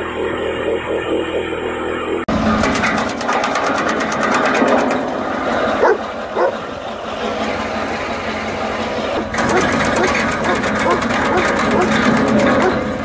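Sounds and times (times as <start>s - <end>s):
tractor engine: 0.0s - 13.0s
dog barking: 5.8s - 6.6s, 9.5s - 12.8s.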